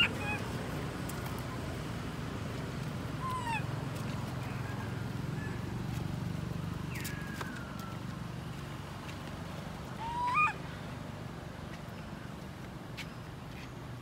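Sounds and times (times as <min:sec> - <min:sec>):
baby monkey crying: 0:00.0 - 0:00.5, 0:03.2 - 0:03.7, 0:10.0 - 0:10.6.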